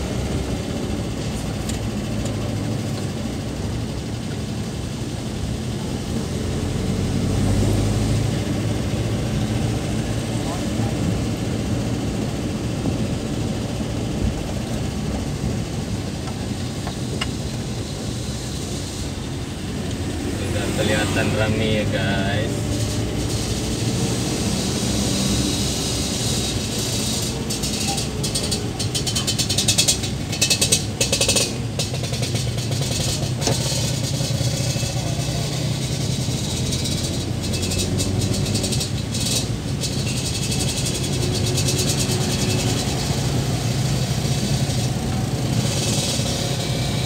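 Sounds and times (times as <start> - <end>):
engine hum inside cab: 0.0 - 47.0
road noise: 0.0 - 47.0
sharp rattling clicks: 26.8 - 35.2.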